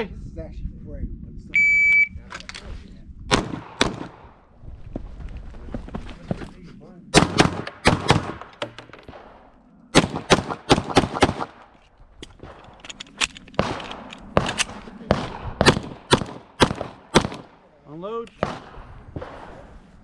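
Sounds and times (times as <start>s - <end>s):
pistol shots: 3.3s - 4.3s, 7.2s - 11.7s, 13.6s - 17.6s, 18.4s - 19.7s.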